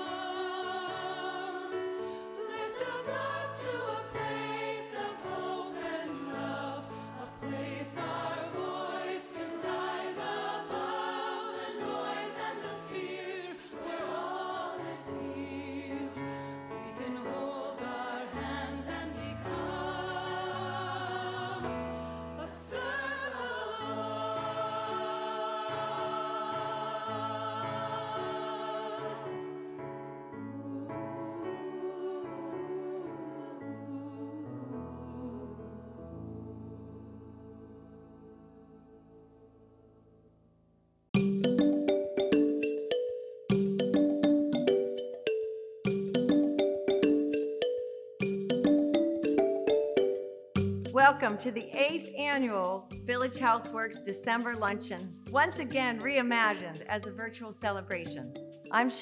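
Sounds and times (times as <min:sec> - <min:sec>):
choir singing slow song: 0:00.0 - 0:40.1.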